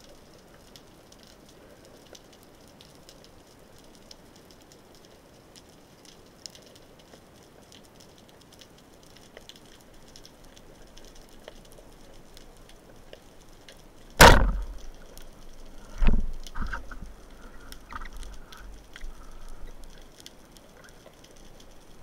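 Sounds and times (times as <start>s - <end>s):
small clicks: 0.3s - 22.0s
speargun firing crack: 14.2s - 14.9s
faint underwater hiss: 14.2s - 22.0s.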